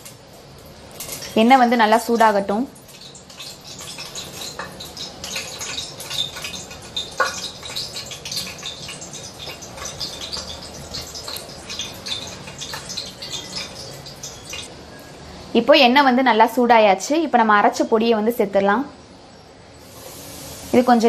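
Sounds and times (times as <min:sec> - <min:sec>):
oil crackling and popping: 0:00.0 - 0:14.7.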